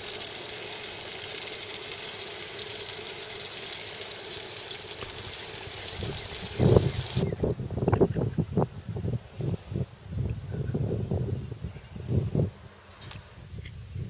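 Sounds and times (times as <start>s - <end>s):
steady hiss: 0.0s - 7.3s.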